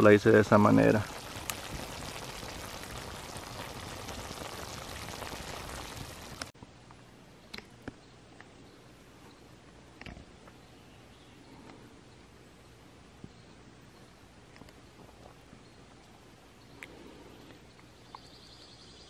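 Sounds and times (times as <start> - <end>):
stew bubbling and sizzling: 0.0 - 6.6.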